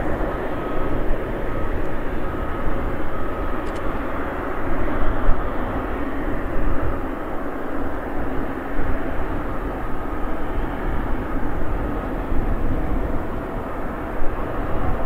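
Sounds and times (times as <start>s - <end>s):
jet engines taxiing: 0.0s - 15.0s.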